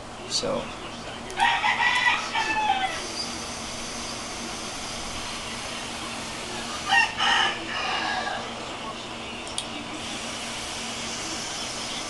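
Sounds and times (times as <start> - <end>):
rooster crowing: 1.4 - 3.1, 6.9 - 8.5.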